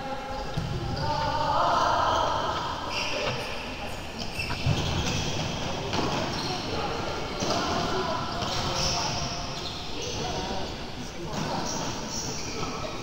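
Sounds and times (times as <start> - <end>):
voices calling out: 0.0 - 13.0
ball bouncing on court floor: 0.4 - 1.3, 4.2 - 6.5.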